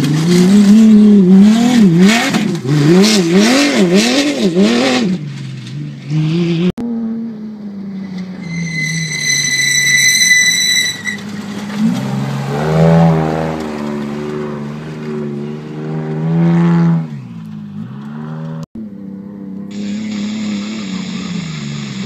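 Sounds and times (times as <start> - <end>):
race truck engine revving: 0.0 - 7.3, 19.7 - 22.0
second truck engine: 0.0 - 22.0
high steady whine: 19.7 - 22.0.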